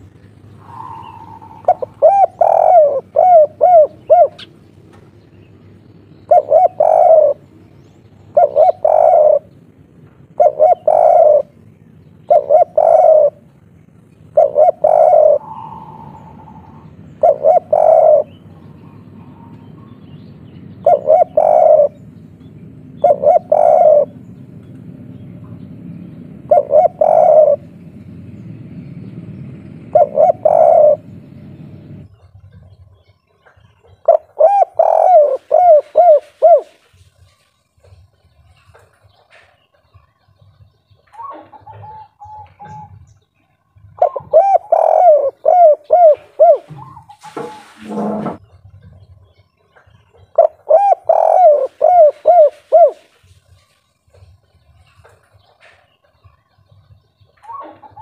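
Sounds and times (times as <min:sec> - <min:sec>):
dove cooing: 0:00.0 - 0:04.7, 0:05.8 - 0:20.0, 0:20.6 - 0:22.2, 0:22.8 - 0:24.4, 0:26.4 - 0:27.9, 0:29.7 - 0:32.5, 0:33.5 - 0:37.3, 0:41.0 - 0:43.1, 0:43.7 - 0:48.4, 0:49.8 - 0:53.3, 0:57.4 - 0:58.0.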